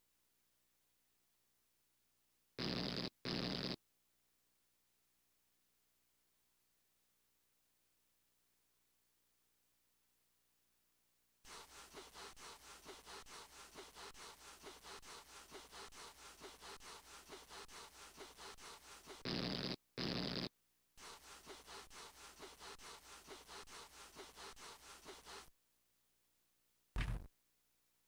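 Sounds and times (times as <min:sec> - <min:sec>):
scratchy rubbing: 0:11.5 - 0:25.5.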